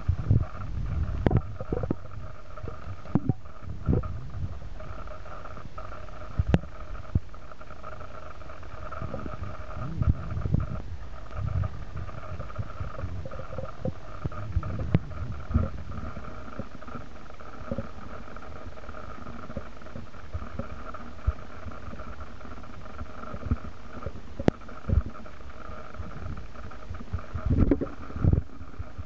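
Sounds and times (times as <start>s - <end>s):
faint steady hum: 0.0s - 29.0s.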